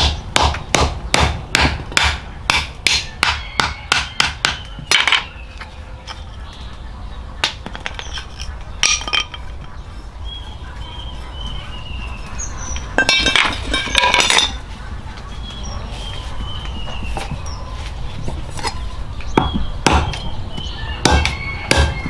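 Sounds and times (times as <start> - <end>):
metal clinks on concrete: 7.6 - 9.7, 13.0 - 14.6.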